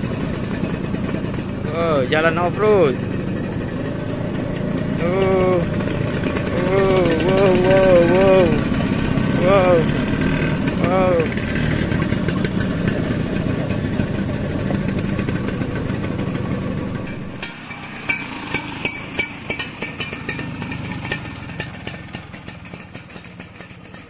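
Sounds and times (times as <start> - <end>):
scooter engine running: 0.0 - 24.0.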